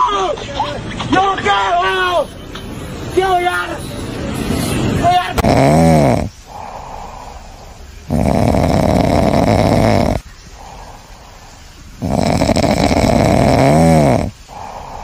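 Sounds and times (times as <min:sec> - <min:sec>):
loud rasping snoring: 0:05.3 - 0:11.4, 0:12.0 - 0:15.0.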